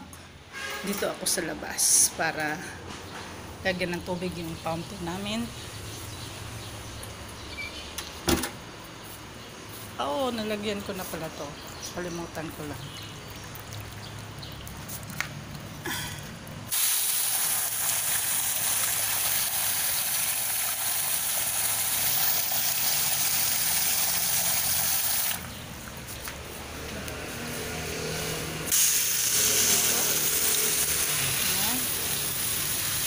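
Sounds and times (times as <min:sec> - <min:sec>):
garden hose spraying water: 0:12.0 - 0:16.1, 0:16.7 - 0:33.0.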